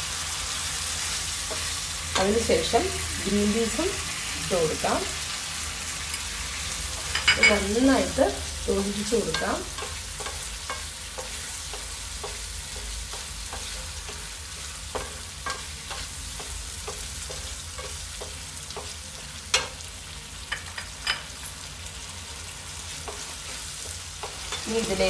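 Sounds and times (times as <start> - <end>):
gravy sizzling: 0.0 - 25.0
spatula scraping and knocking pan: 9.0 - 19.9.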